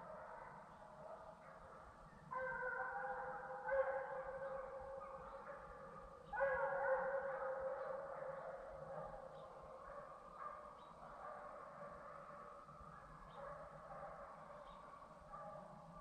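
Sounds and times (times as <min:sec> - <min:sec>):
hounds baying in long howls: 0:02.3 - 0:10.0.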